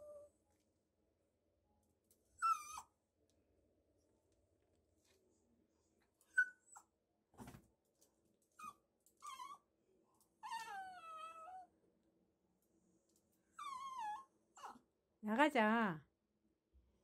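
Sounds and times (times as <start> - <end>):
dog whimpering: 2.4 - 2.9, 8.6 - 9.6, 10.4 - 11.7, 13.6 - 14.8.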